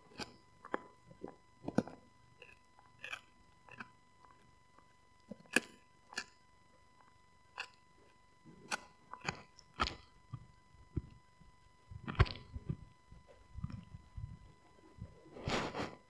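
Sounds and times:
dog gnawing a chew stick: 0.1s - 6.4s, 8.6s - 11.1s, 12.0s - 13.9s.

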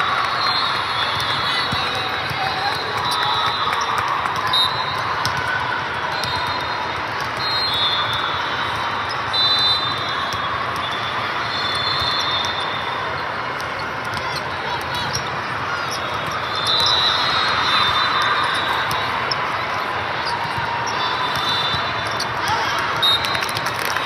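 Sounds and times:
murmur of players and spectators: 0.0s - 24.0s
ball hit and bouncing on court: 5.2s - 5.6s.

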